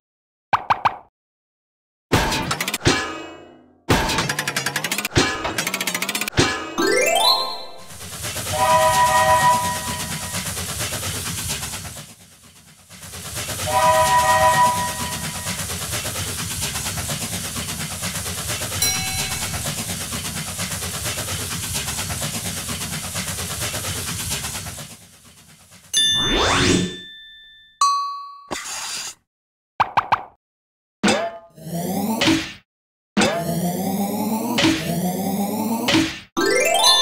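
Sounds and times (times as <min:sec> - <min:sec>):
cartoon steam train chugging: 0:04.2 - 0:27.1, 0:33.6 - 0:37.0
steam whistle: 0:07.2 - 0:10.5, 0:13.4 - 0:15.7.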